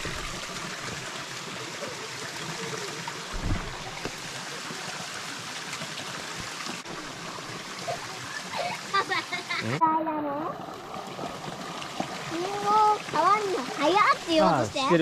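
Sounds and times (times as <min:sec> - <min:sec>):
stream rushing: 0:00.0 - 0:09.8
low thump: 0:03.3 - 0:04.2.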